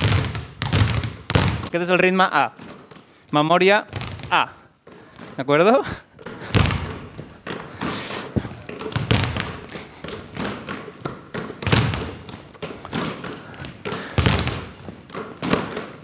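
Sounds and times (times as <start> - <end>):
basketballs bouncing on hard floor: 0.0 - 1.8, 2.4 - 16.0.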